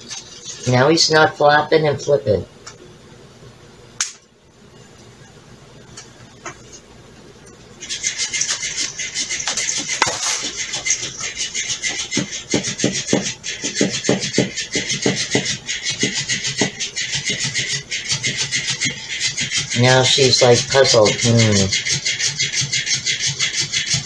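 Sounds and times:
toy motor buzzing: 7.8 - 24.0.

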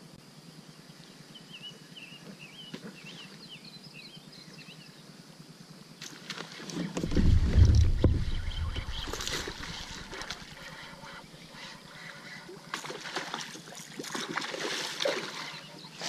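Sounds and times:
fish splashing at water surface: 6.2 - 10.7, 12.7 - 15.6
knocks and clicks: 7.0 - 10.4.

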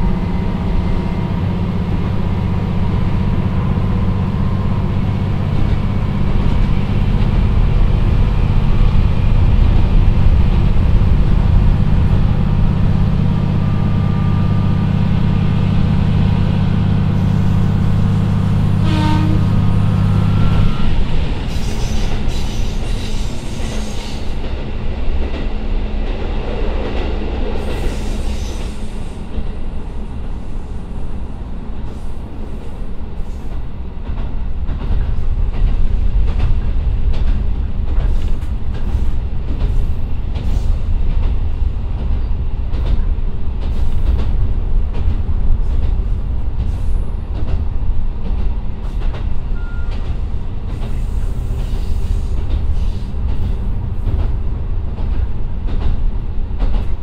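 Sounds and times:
diesel railcar engine drone: 0.0 - 57.0
rail joint clicks: 0.0 - 57.0
wheels rumbling on rail: 0.0 - 57.0
hiss and squeal: 20.1 - 24.3, 27.7 - 29.2.

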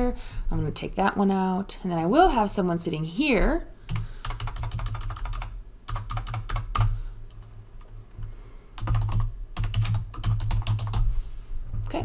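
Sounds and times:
typing on a keyboard: 3.9 - 7.0, 8.8 - 11.0.

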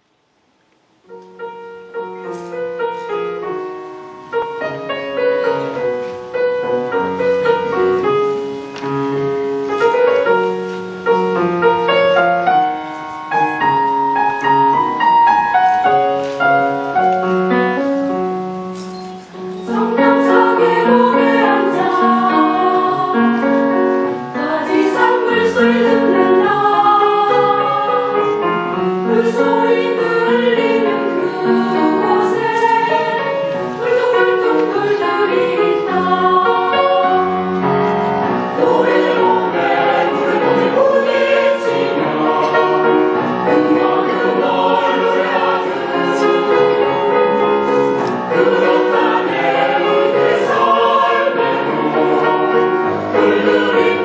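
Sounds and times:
slow piano: 0.0 - 54.0
mixed choir singing: 19.4 - 54.0.

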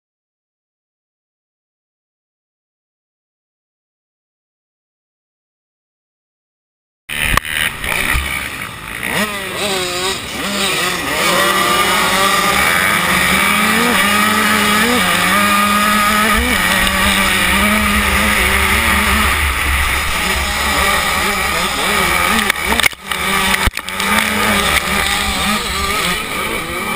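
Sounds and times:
motocross bike engine revving: 7.1 - 26.9
other motorbike engines: 7.1 - 26.9.

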